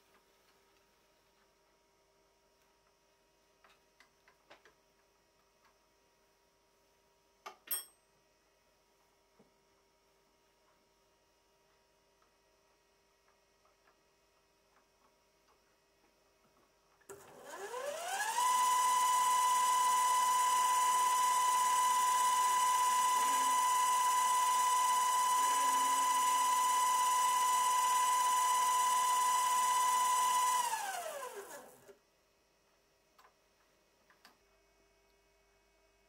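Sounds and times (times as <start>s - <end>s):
lathe motor whine: 17.1s - 31.9s.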